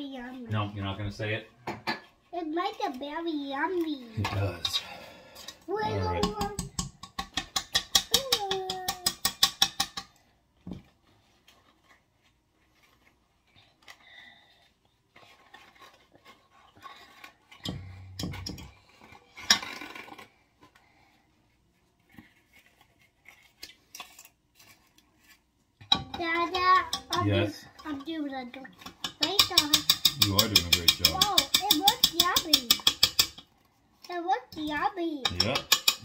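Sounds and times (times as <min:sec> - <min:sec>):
soft rustles and knocks: 0:10.6 - 0:13.4
whisk beating against metal pot: 0:25.9 - 0:28.1, 0:28.8 - 0:33.4.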